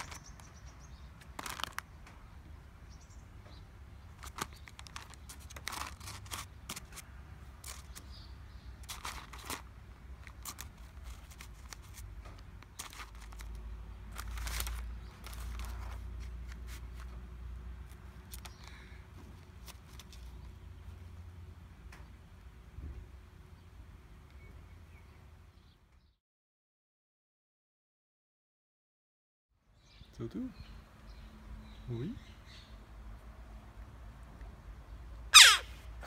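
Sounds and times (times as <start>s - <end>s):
paper rustling and tearing: 0.0s - 0.4s, 1.2s - 1.9s, 4.2s - 8.1s, 8.8s - 17.2s.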